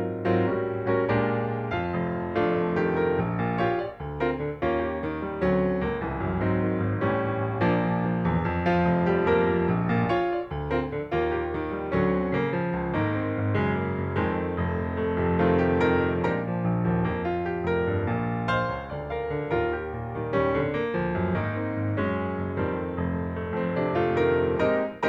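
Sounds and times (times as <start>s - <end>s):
keyboard melody: 0.0s - 25.0s.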